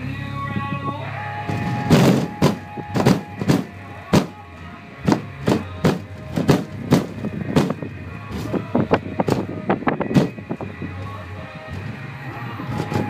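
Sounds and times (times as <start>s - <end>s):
bass-heavy music: 0.0s - 13.0s
low bass tone: 0.0s - 13.0s
sharp slaps and rattles: 1.5s - 4.4s, 5.1s - 7.8s, 10.1s - 10.4s.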